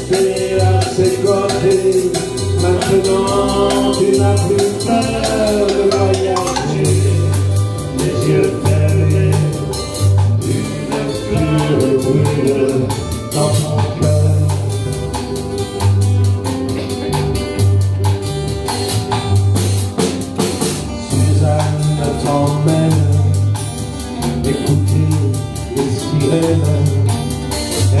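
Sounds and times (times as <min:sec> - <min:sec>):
bass line: 0:00.0 - 0:28.0
drum kit beat: 0:00.0 - 0:28.0
jazz guitar: 0:00.0 - 0:28.0
strummed acoustic guitars: 0:00.0 - 0:28.0.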